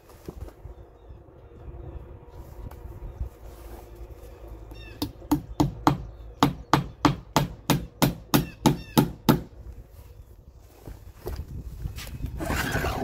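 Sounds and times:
hammer driving a nail: 5.0 - 9.5.

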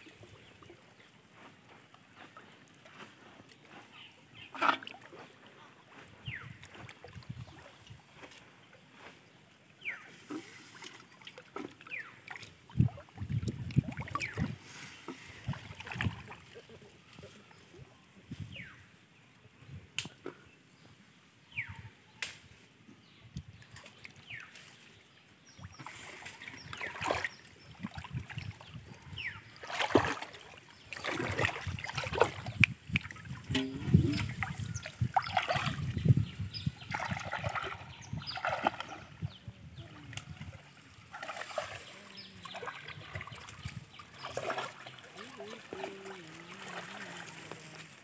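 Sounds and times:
shallow water splashing: 9.8 - 16.8, 25.4 - 48.0.

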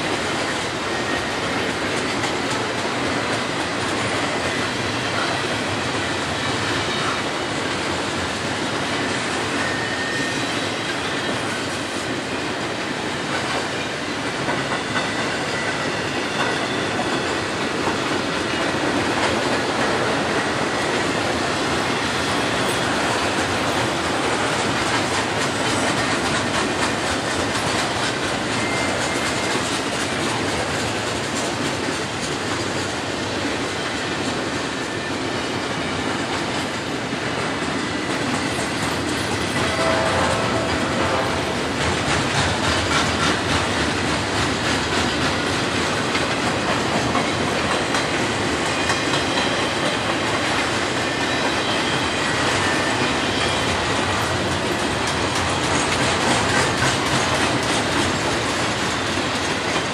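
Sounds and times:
train wheels rumbling on rail: 0.0 - 59.9
high wheel squeal: 9.0 - 11.9, 28.4 - 29.9, 48.6 - 55.0.

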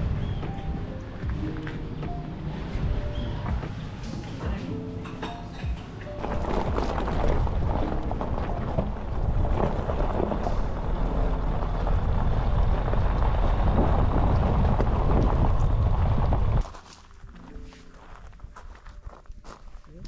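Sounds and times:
wind noise on microphone: 0.0 - 3.9, 5.7 - 17.4
tyres rumbling over gravel: 0.0 - 19.7.

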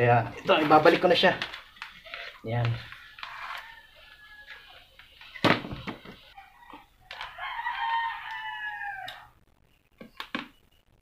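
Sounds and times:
rooster crowing: 2.8 - 4.9, 6.3 - 9.4.

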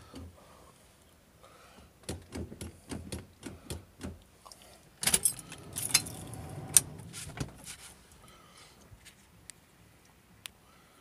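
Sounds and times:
key ring jangling: 5.1 - 6.9.

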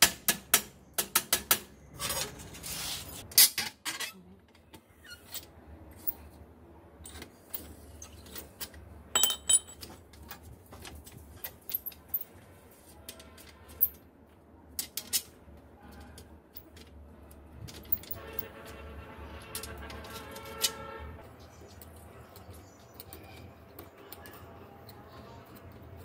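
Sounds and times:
metal tools clinking and knocking: 7.0 - 12.4, 17.6 - 18.7.

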